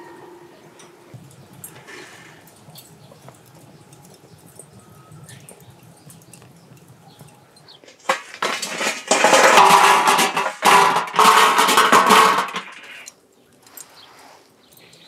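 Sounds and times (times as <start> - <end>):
charcoal clattering onto metal grill: 1.1 - 3.5, 6.3 - 13.1.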